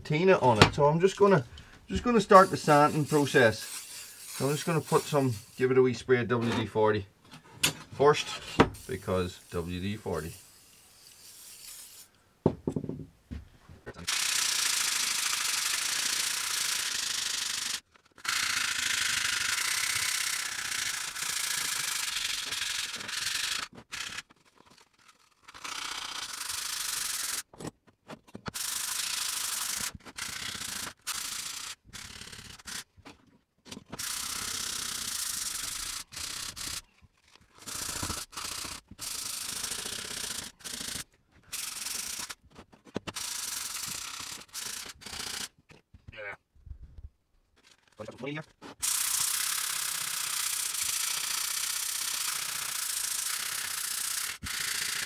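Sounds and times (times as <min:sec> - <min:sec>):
sandpaper scraping steel blade: 0:01.9 - 0:05.8, 0:08.1 - 0:12.1, 0:14.1 - 0:27.5, 0:28.5 - 0:32.9, 0:33.9 - 0:42.4, 0:47.6 - 0:55.0.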